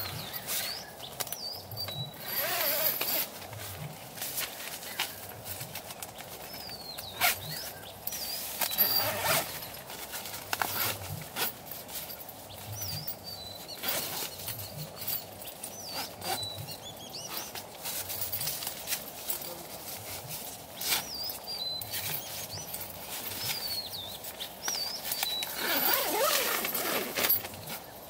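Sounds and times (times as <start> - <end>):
tent zipper pulled: 2.2 - 3.5, 7.0 - 12.1, 13.7 - 15.1, 15.7 - 16.5, 24.8 - 27.8
nylon fabric rustling: 2.2 - 16.5, 17.2 - 28.0.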